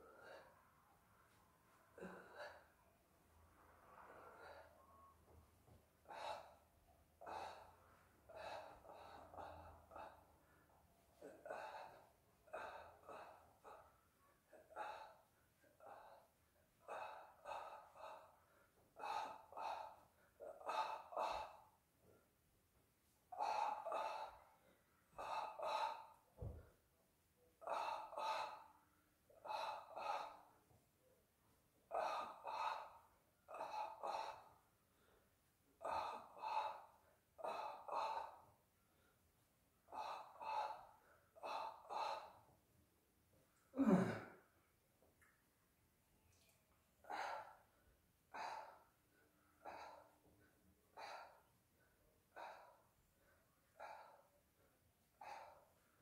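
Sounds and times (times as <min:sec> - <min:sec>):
person gasping rhythmically: 0:05.8 - 0:22.4, 0:23.0 - 0:26.8, 0:27.5 - 0:30.9, 0:31.8 - 0:42.7, 0:46.3 - 0:56.0.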